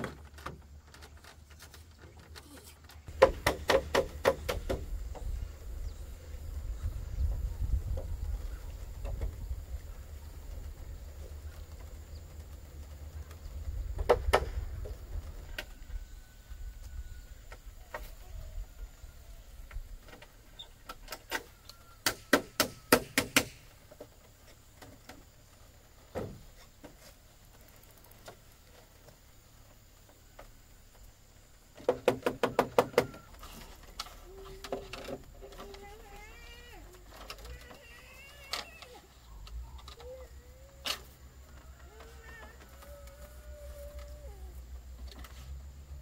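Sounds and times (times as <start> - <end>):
sharp knocks: 3.1 - 5.3, 22.0 - 23.7.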